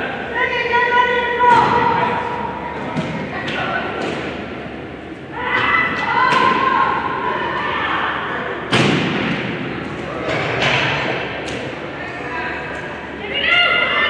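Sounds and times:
loud echoing thud: 8.6s - 11.4s.

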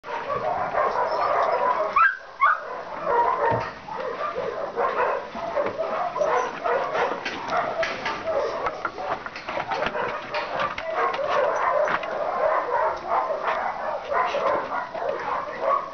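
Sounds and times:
dog whining and yipping: 0.5s - 2.8s, 5.5s - 9.2s.

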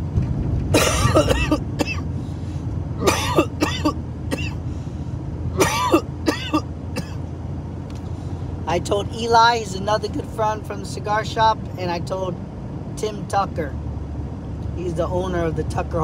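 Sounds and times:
car road and engine rumble: 0.0s - 16.0s
man coughing: 0.7s - 2.1s, 3.0s - 4.6s, 5.6s - 7.2s.

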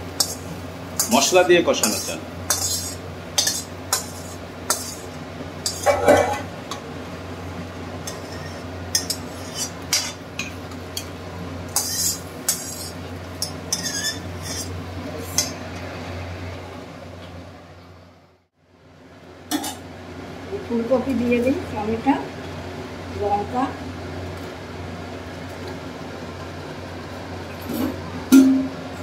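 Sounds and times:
steel kitchenware scraping and clinking: 1.0s - 6.8s, 8.0s - 11.1s, 11.8s - 15.8s.

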